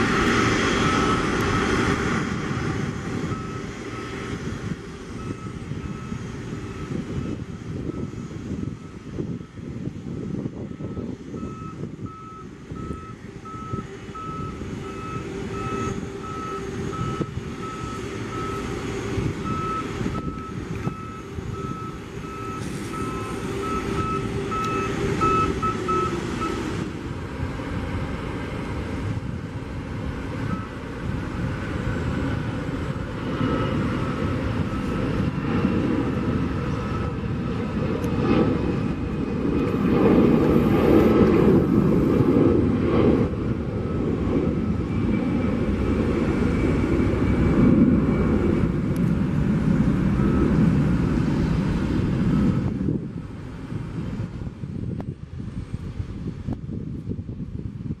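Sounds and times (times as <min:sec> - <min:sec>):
reversing alarm beeping: 0:00.0 - 0:09.1, 0:10.8 - 0:26.9, 0:30.4 - 0:30.8, 0:33.4 - 0:37.6, 0:49.7 - 0:52.7
jet airliner engines at takeoff: 0:00.0 - 0:58.0.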